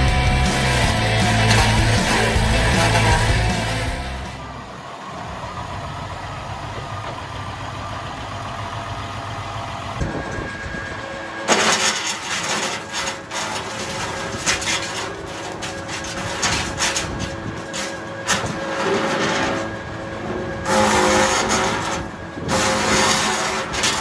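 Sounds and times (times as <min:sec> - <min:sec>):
tractor engine running: 0:00.0 - 0:24.0
wood chipper shredding branch: 0:00.0 - 0:24.0.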